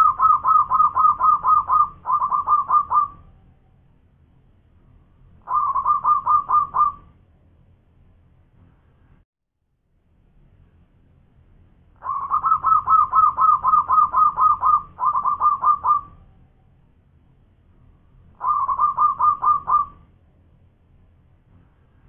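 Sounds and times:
dove staccato cooing: 0:00.0 - 0:03.2, 0:05.5 - 0:07.1, 0:12.0 - 0:16.2, 0:18.4 - 0:20.0.

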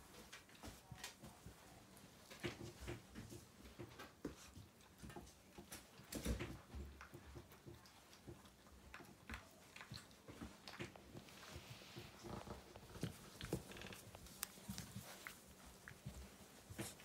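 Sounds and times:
puppy eating from metal bowl: 0:05.0 - 0:11.6.

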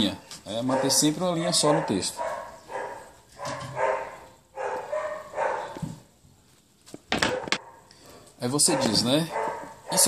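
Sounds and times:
dog barking: 0:00.6 - 0:05.8, 0:07.3 - 0:07.9, 0:08.6 - 0:10.0.

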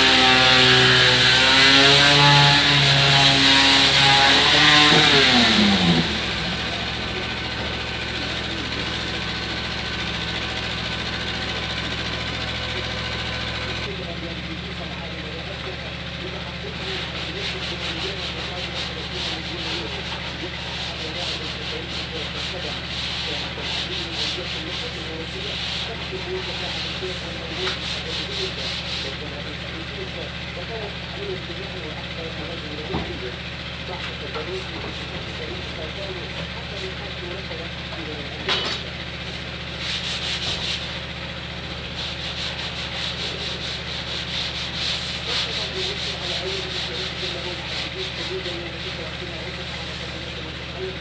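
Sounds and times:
sandpaper rubbing on wood: 0:00.0 - 0:06.9, 0:16.8 - 0:29.3, 0:39.3 - 0:41.0, 0:42.0 - 0:50.5
steady low hum: 0:00.0 - 0:51.0.

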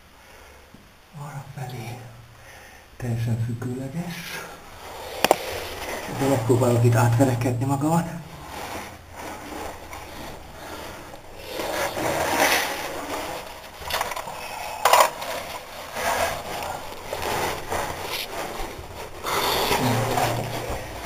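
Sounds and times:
clothing scraping against rock: 0:04.4 - 0:21.0.

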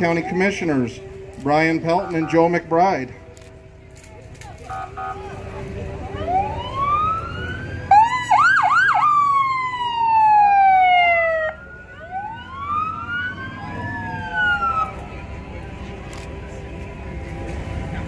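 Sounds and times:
fire truck siren: 0:04.6 - 0:17.4.

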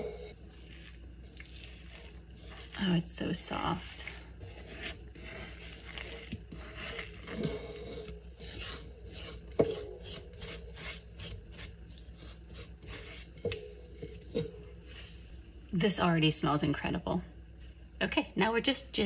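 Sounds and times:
fingers scraping dough from bowl: 0:00.0 - 0:15.3.

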